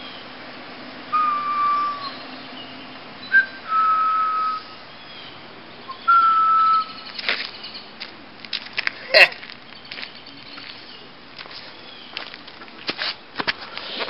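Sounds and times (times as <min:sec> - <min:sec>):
person whistling: 0:03.3 - 0:04.6, 0:05.9 - 0:06.9.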